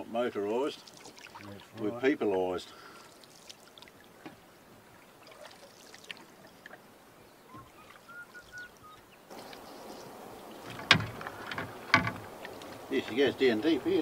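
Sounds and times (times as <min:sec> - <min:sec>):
water dripping off paddle: 0:00.6 - 0:06.8, 0:07.9 - 0:09.8, 0:10.4 - 0:13.3
paddle stroking through water: 0:09.3 - 0:14.0.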